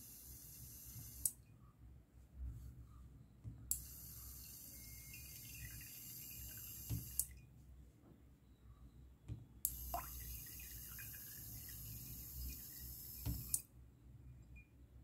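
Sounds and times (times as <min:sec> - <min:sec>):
water trickling into a jar: 0:04.4 - 0:07.4, 0:09.7 - 0:13.5
water pump whining: 0:09.7 - 0:13.6.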